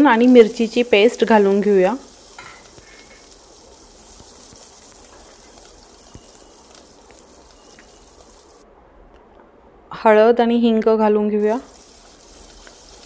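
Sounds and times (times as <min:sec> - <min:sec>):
hot oil sizzling in a pot: 0:00.0 - 0:08.6, 0:11.4 - 0:13.0
oil popping: 0:00.0 - 0:08.6, 0:11.4 - 0:13.0.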